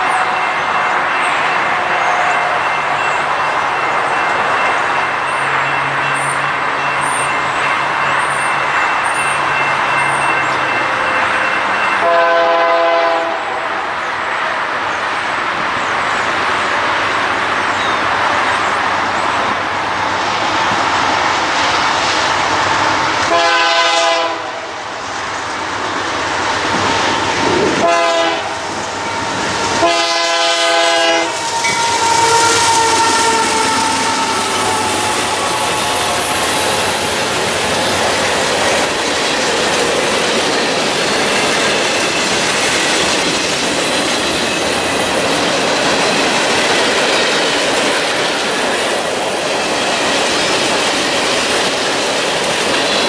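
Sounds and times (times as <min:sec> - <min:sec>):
train rumble: 0:00.0 - 0:53.0
locomotive air horn blasts: 0:12.0 - 0:13.8, 0:23.3 - 0:24.7, 0:27.8 - 0:36.5.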